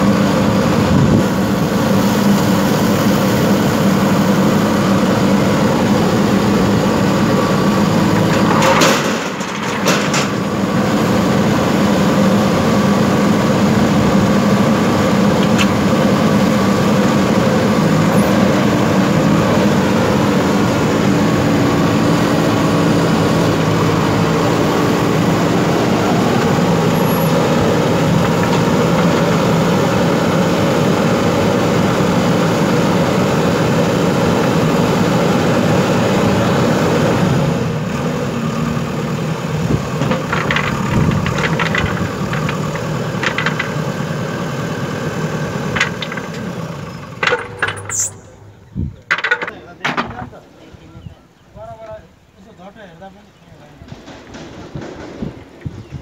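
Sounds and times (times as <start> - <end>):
diesel engine droning: 0.0 - 56.0
sharp clicks and clinks: 47.2 - 48.4.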